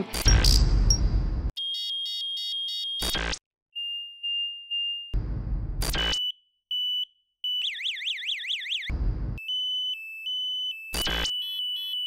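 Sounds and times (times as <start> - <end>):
two-tone beep: 0.2 - 5.2, 5.9 - 7.6, 9.4 - 12.0
warbling siren: 7.5 - 12.0.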